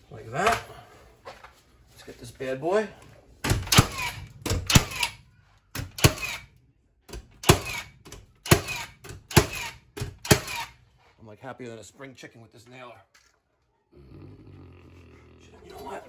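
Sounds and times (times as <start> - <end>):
nail gun firing: 3.4 - 6.5, 7.1 - 10.8.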